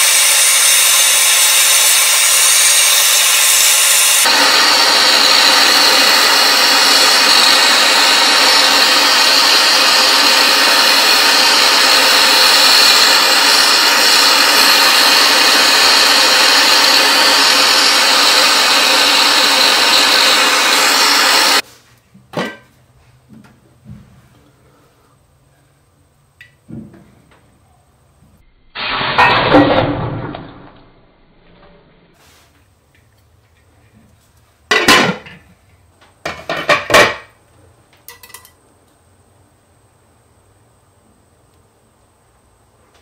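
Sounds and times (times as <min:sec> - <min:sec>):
gas torch hissing: 0:00.0 - 0:21.7, 0:28.8 - 0:29.3.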